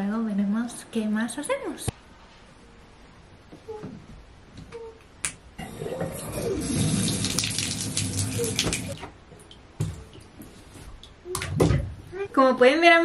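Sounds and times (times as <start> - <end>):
water running into bathtub: 5.6 - 9.0.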